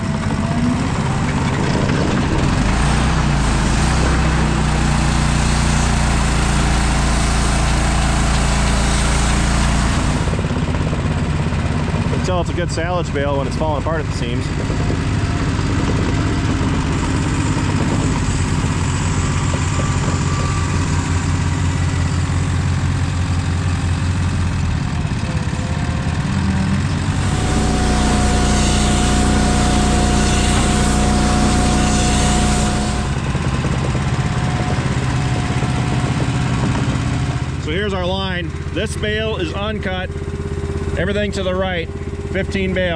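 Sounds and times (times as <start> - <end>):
diesel engine running: 0.0 - 42.9
steady high whine: 25.4 - 42.9.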